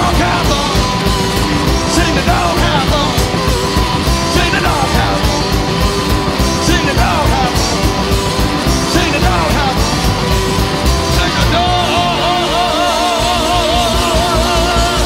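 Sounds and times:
drum kit beat: 0.0s - 15.0s
sliding blues guitar: 0.0s - 15.0s
upright double bass: 0.0s - 15.0s.

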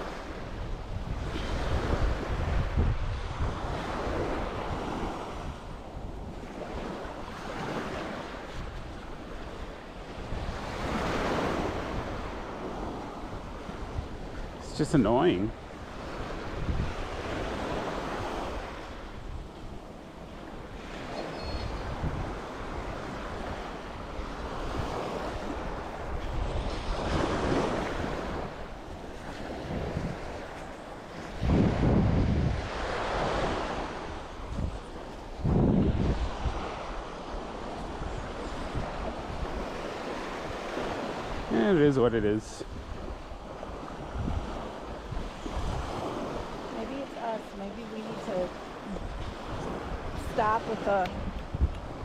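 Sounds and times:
sea waves washing onto beach: 0.0s - 52.0s
wind rumbling on microphone: 0.0s - 52.0s.

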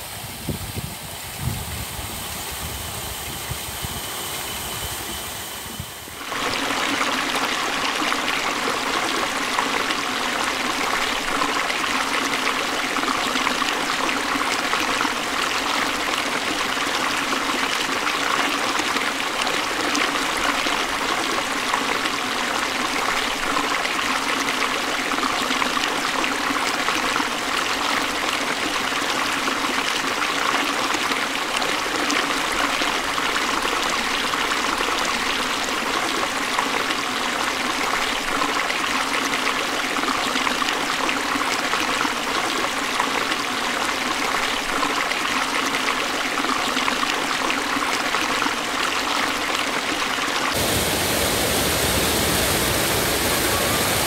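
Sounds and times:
aerator motor running: 0.0s - 6.4s, 50.5s - 54.0s
water pouring over a weir: 6.1s - 52.6s
paddles splashing water: 50.2s - 54.0s.

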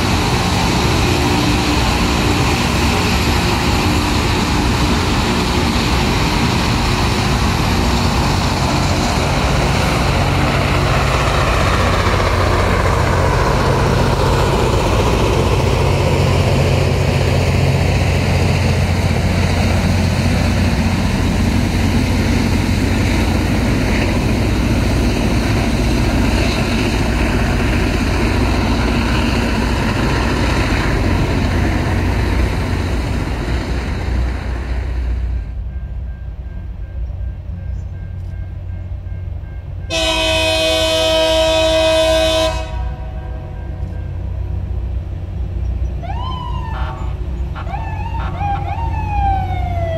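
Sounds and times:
rail grinder roaring: 0.0s - 35.4s.

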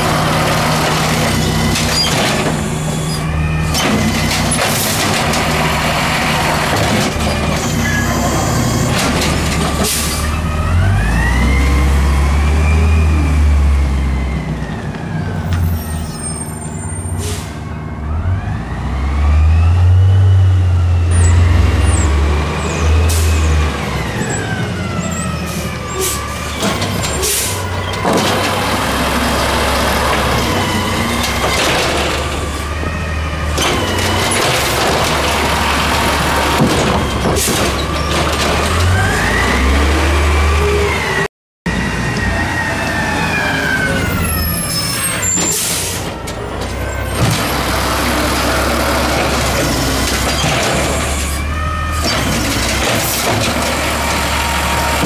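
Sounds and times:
clanks and knocks of cart: 3.7s - 5.7s, 6.6s - 10.0s, 26.5s - 28.9s, 31.2s - 32.5s, 33.5s - 39.0s, 48.9s - 51.3s, 52.0s - 55.0s
garbage truck engine running: 41.7s - 55.0s.

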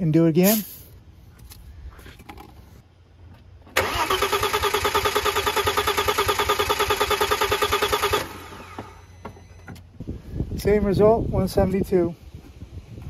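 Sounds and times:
engine cranking on starter: 3.7s - 9.3s.

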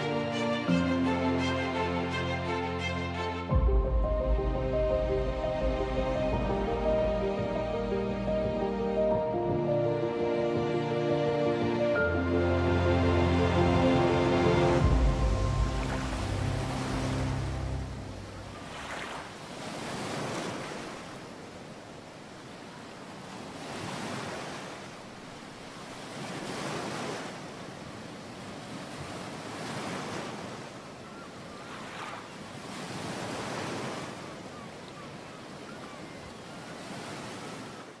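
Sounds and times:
surf on pebbly beach: 13.5s - 38.0s.

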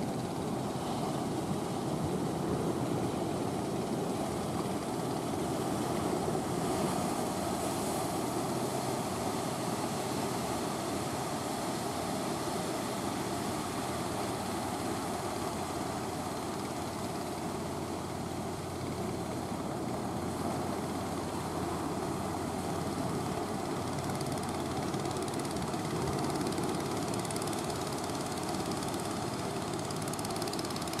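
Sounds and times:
small boat engine running: 0.0s - 31.0s.

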